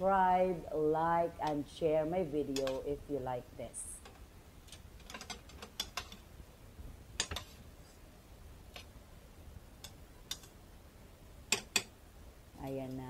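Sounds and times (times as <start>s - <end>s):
metal tongs clicking on pot: 2.5s - 2.9s, 4.7s - 6.2s, 9.8s - 10.6s, 11.5s - 11.9s.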